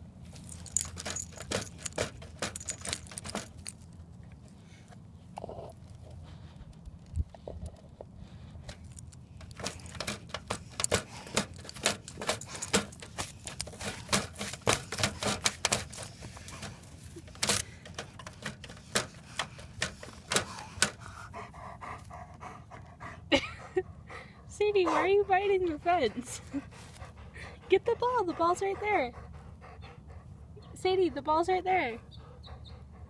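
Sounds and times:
dog collar tags jingling: 0:00.3 - 0:04.0, 0:08.8 - 0:16.8.

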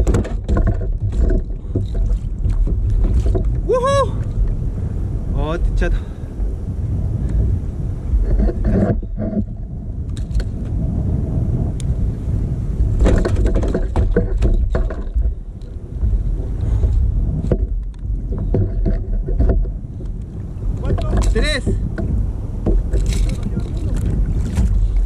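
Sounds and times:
knocks and splashes: 0:00.0 - 0:04.6, 0:12.9 - 0:15.4, 0:16.0 - 0:25.0
water slapping plastic hull: 0:00.0 - 0:04.6, 0:12.9 - 0:15.4, 0:16.8 - 0:25.0
wind rumble on microphone: 0:00.0 - 0:25.0.

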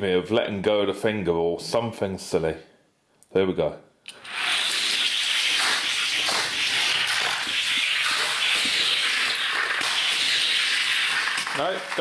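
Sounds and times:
toy cars rolling on plastic track: 0:05.4 - 0:12.0.

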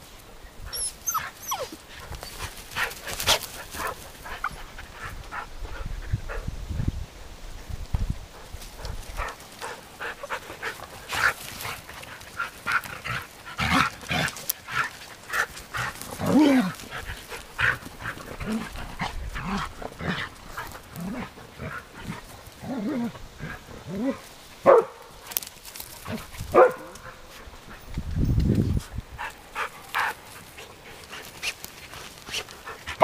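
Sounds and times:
dogs barking and yipping: 0:00.7 - 0:05.0, 0:09.2 - 0:25.1, 0:26.1 - 0:27.1.

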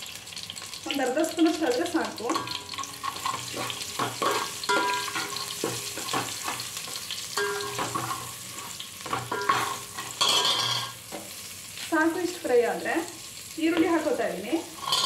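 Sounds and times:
food sizzling in hot oil: 0:00.0 - 0:15.0
metal ladle scraping a pot: 0:02.3 - 0:06.7, 0:07.3 - 0:11.0, 0:14.8 - 0:15.0.

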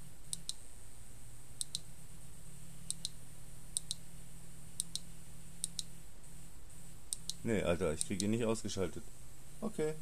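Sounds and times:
faint sharp double clicks: 0:01.6 - 0:01.9, 0:02.9 - 0:03.2, 0:03.8 - 0:04.0, 0:04.8 - 0:05.9, 0:07.1 - 0:07.4.

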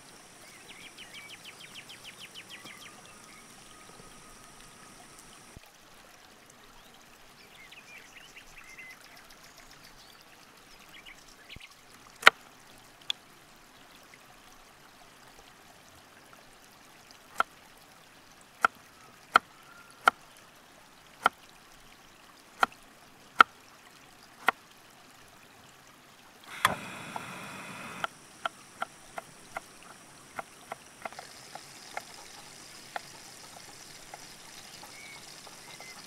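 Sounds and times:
butter sizzling in frying pan: 0:27.7 - 0:36.0.

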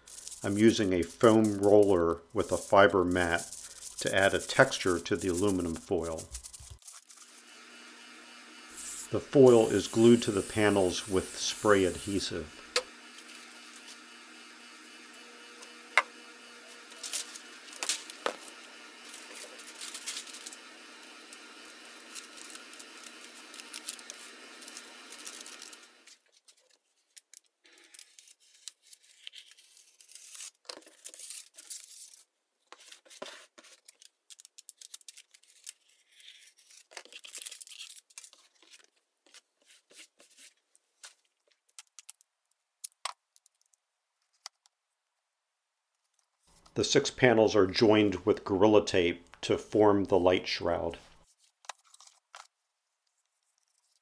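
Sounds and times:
aluminium foil crinkling: 0:00.0 - 0:07.5, 0:16.7 - 0:44.4, 0:51.2 - 0:54.0
steady hiss: 0:00.0 - 0:26.1
tape ripping off roll: 0:16.8 - 0:26.2.

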